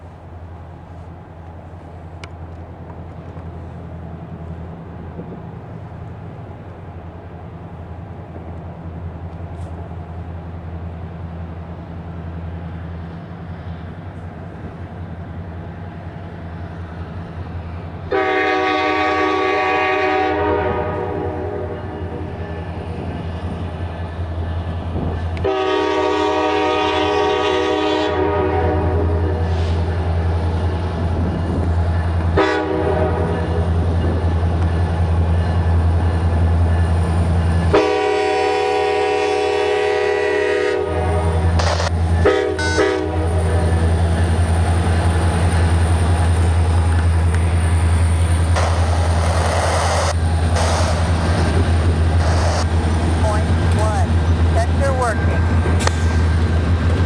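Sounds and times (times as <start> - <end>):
diesel locomotive engine rumble: 0.0 - 57.0
locomotive air horn blasts: 18.1 - 22.3, 25.4 - 29.7, 32.4 - 33.5, 37.7 - 43.8.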